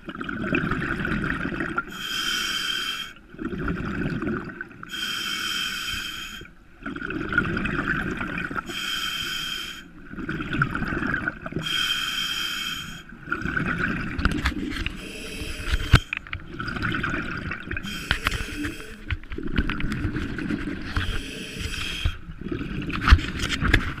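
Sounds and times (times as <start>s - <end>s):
scuba regulator breathing: 1.9s - 3.2s, 4.9s - 6.5s, 8.7s - 9.9s, 11.6s - 13.1s, 14.8s - 16.3s, 17.8s - 19.2s, 20.9s - 22.3s.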